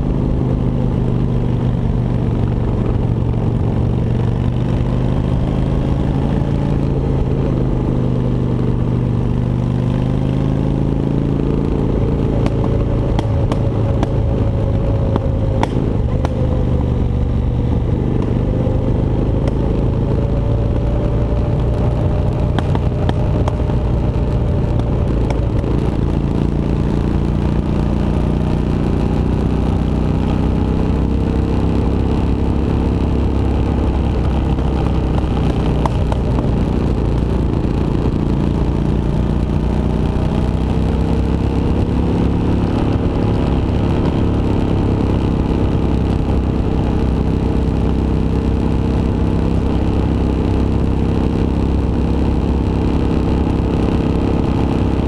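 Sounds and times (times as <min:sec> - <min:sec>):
motorcycle engine running: 0:00.0 - 0:55.0
road rumble: 0:00.0 - 0:55.0.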